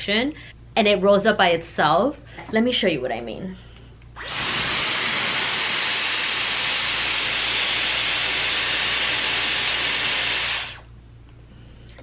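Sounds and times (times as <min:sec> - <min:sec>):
hair styler air hissing: 0:04.2 - 0:10.9.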